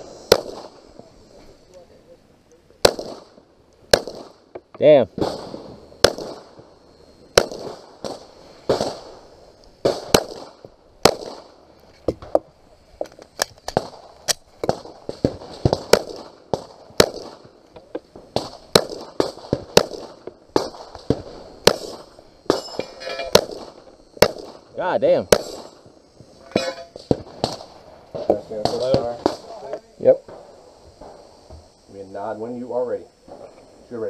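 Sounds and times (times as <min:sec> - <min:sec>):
pistol shots: 0:00.2 - 0:00.8, 0:02.8 - 0:04.5, 0:05.2 - 0:06.6, 0:07.3 - 0:09.1, 0:09.8 - 0:11.6, 0:13.7 - 0:17.5, 0:18.4 - 0:24.7, 0:25.3 - 0:25.8.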